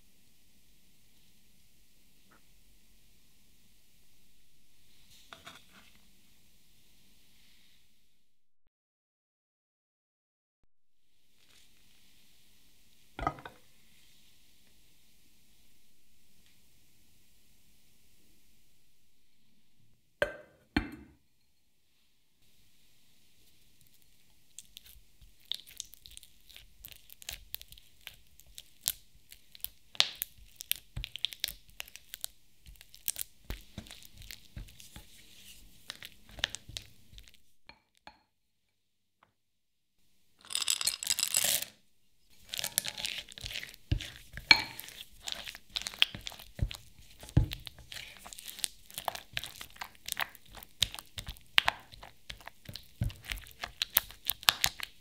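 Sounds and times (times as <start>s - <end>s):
spatula stirring cream cheese: 23.4s - 37.6s, 42.3s - 55.0s
spatula tapping glass bowl: 43.9s - 45.0s.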